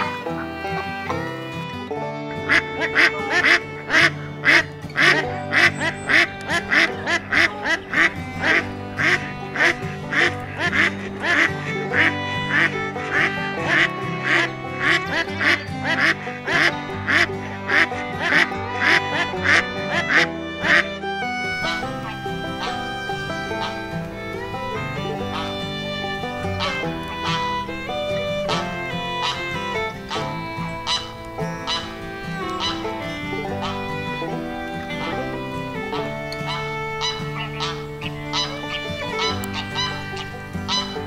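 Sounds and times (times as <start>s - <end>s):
background music: 0.0s - 41.0s
ducks quacking: 0.0s - 41.0s.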